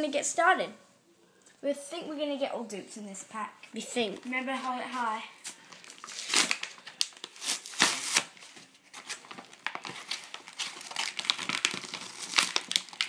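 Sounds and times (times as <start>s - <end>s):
blister pack being torn open: 5.8s - 8.4s, 9.1s - 13.0s.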